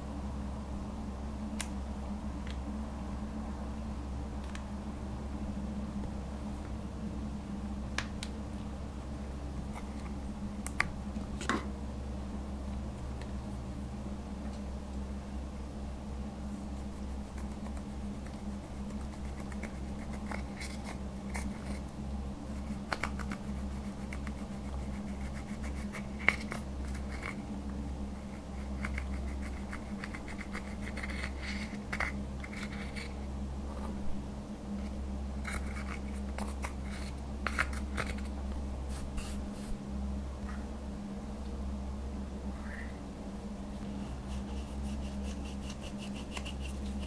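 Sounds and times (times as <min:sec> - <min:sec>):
steady low hum: 0:00.0 - 0:47.0
eyeshadow scratching and crumbling: 0:16.7 - 0:21.9, 0:22.5 - 0:27.5, 0:28.2 - 0:34.0, 0:34.8 - 0:39.7, 0:44.3 - 0:47.0.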